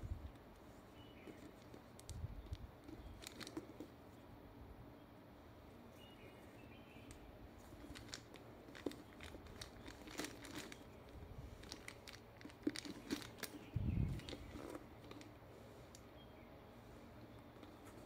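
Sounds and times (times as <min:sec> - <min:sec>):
leather rustling: 0:07.7 - 0:15.2.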